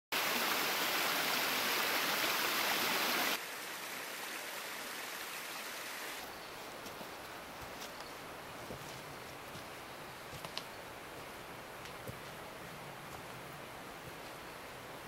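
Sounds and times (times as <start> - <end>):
running water rushing: 0.1 - 6.3.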